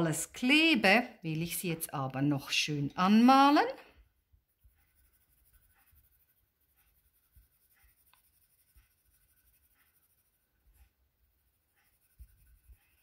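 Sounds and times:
felt-tip pen scratching on paper: 0:02.7 - 0:13.0.

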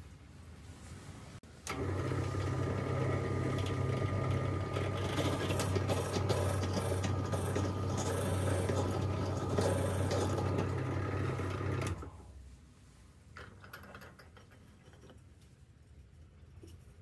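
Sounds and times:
power tool humming on wood: 0:01.7 - 0:12.1.

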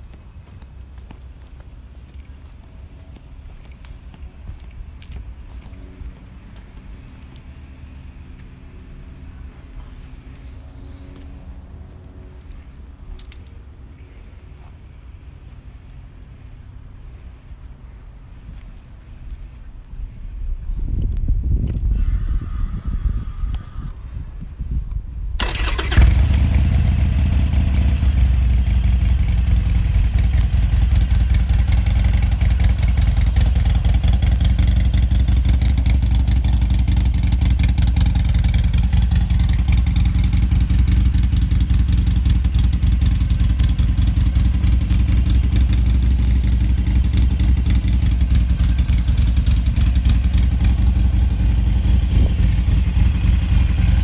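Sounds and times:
motorcycle engine idling: 0:25.4 - 0:54.0.

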